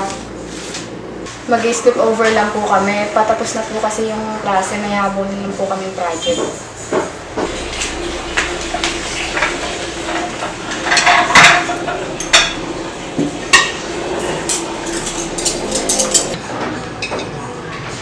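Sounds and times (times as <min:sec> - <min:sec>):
steady low hum: 0:03.6 - 0:16.5
dishes and cutlery clinking: 0:14.4 - 0:16.4.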